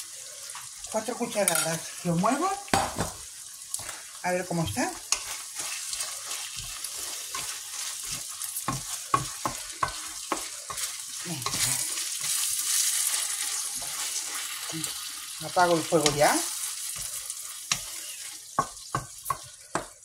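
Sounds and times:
food sizzling in a frying pan: 0.0 - 20.0
utensil knocking and scraping pan: 6.5 - 10.9.

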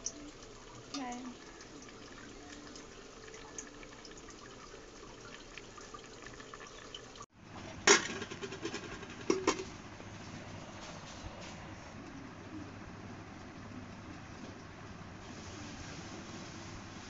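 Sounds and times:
curry simmering in pot: 0.0 - 7.4.

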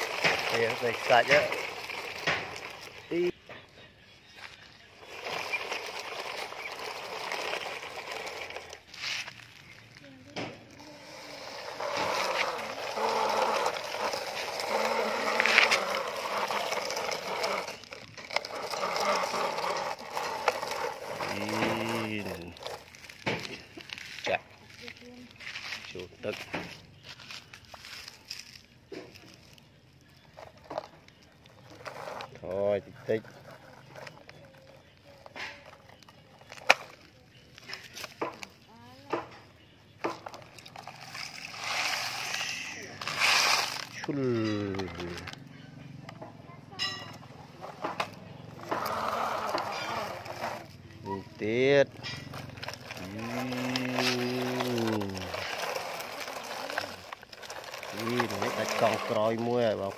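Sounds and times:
plastic toy truck clicks and knocks: 0.0 - 3.7
toy truck rattling over gravel: 0.0 - 59.9.

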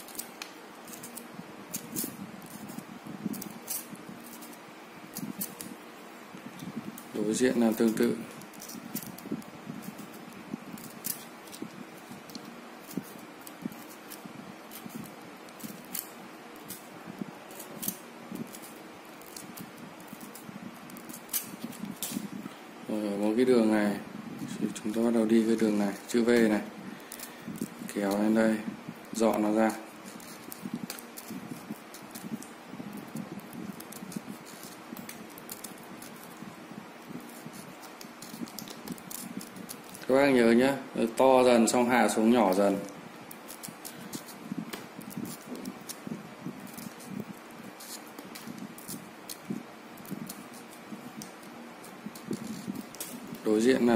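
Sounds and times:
knife clicking and scraping rind: 0.0 - 5.7
steady background hiss: 0.0 - 53.9
knife cutting melon rind: 25.0 - 40.3.

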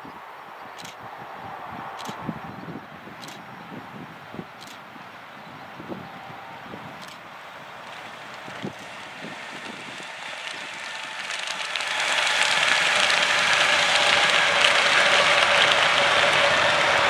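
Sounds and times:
train wheels rushing on rail: 0.8 - 17.0.

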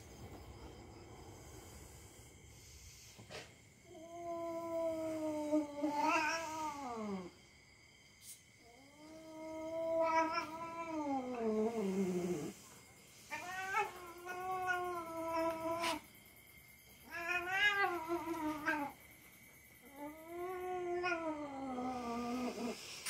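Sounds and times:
cat yowling: 4.0 - 7.3, 9.1 - 11.7, 13.3 - 16.0, 17.0 - 19.0, 19.9 - 22.6.

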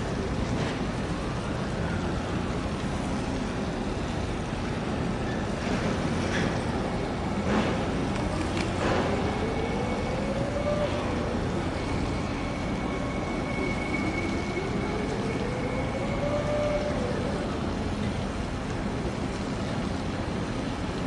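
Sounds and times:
engine rumble: 0.0 - 21.0
rising engine whine: 7.4 - 19.0.

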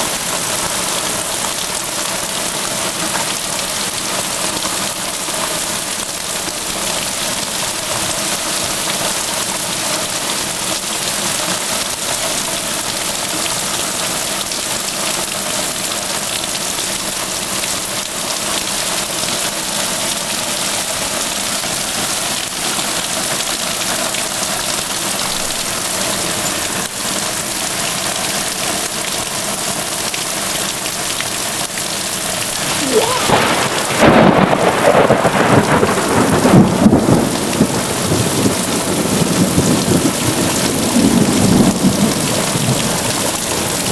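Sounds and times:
heavy rain pouring: 0.0 - 43.9
thunder rumble: 32.6 - 37.4.

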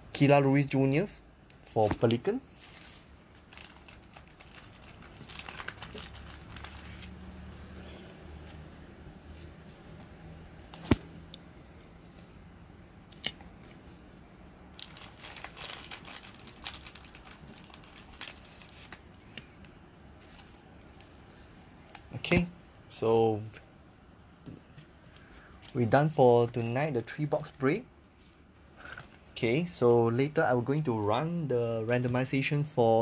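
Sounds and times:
trading cards rustling and crinkling: 1.6 - 11.2, 14.8 - 21.4, 24.6 - 29.3.

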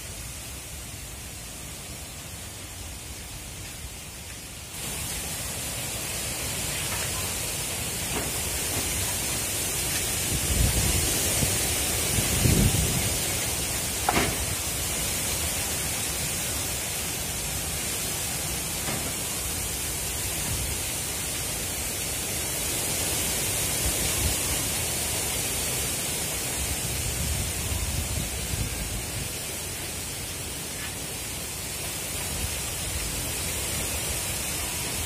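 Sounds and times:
wind buffeting microphone: 10.2 - 13.3.

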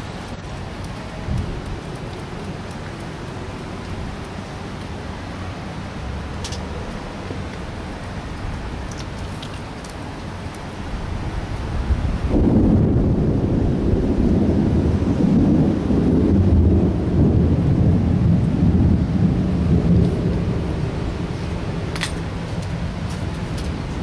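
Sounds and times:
low roll of thunder: 11.7 - 23.0.

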